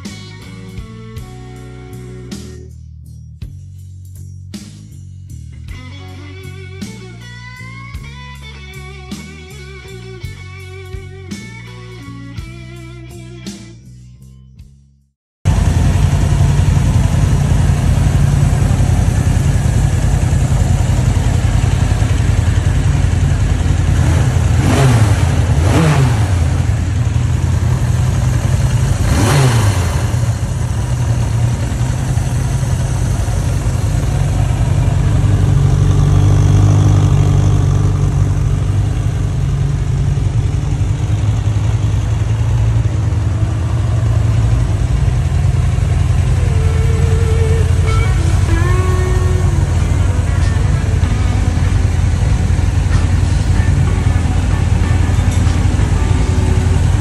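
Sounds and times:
motorcycle engine idling and revving: 0.0 - 14.0, 15.5 - 57.0.

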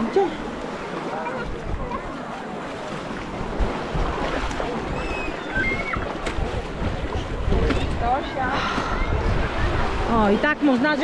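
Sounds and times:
small waves washing: 0.0 - 11.0
wind buffeting microphone: 1.3 - 2.1, 3.1 - 11.0.

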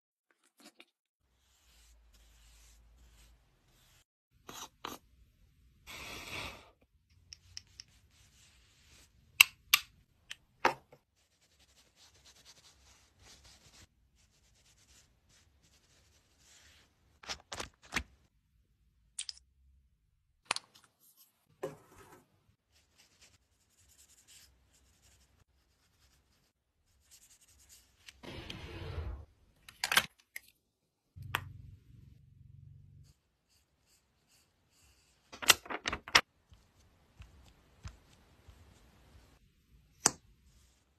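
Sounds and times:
rubbing and scraping: 0.5 - 5.0.

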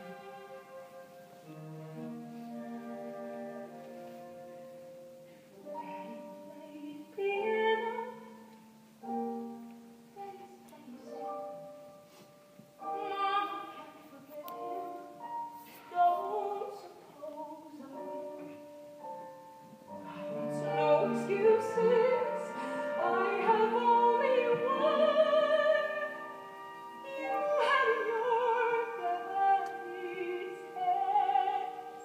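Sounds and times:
orchestral accompaniment: 0.0 - 32.0
woman singing a slow ballad: 5.8 - 8.3, 12.9 - 15.1, 15.8 - 18.6, 27.1 - 32.0.

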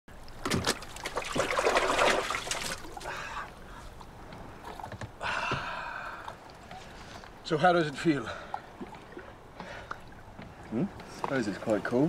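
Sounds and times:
water splashing in plastic bucket: 0.3 - 3.0.

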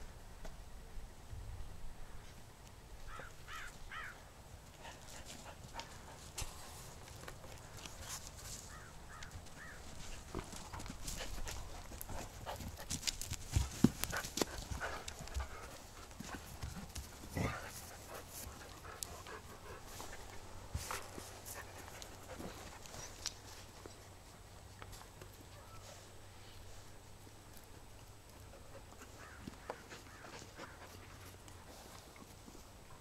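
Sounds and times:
dogs panting: 4.7 - 23.9, 28.0 - 32.6
dogs scuffling at wire fence: 4.7 - 24.0.

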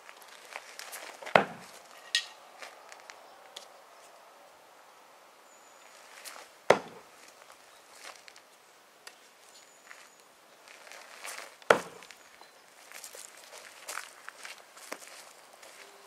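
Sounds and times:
throwing tool thudding into wood: 1.2 - 2.4, 6.7 - 7.0, 11.7 - 12.0.

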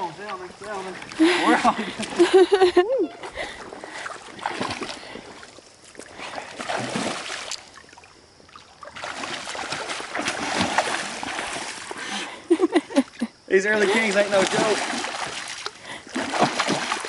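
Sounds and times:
fish splashing at water surface: 6.3 - 7.7, 8.7 - 12.0, 13.8 - 17.0.

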